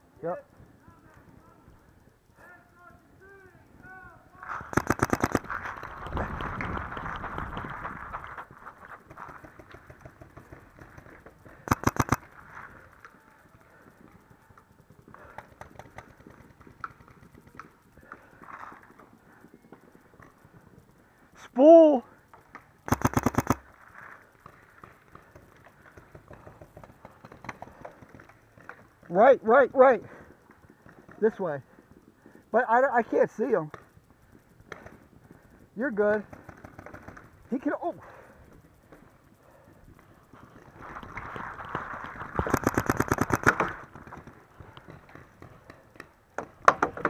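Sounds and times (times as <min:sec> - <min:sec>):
faint distant pops and ticks: 0:00.4 - 0:47.0
paintball marker shots: 0:04.6 - 0:06.8, 0:11.6 - 0:12.3, 0:22.9 - 0:23.6, 0:42.4 - 0:44.2.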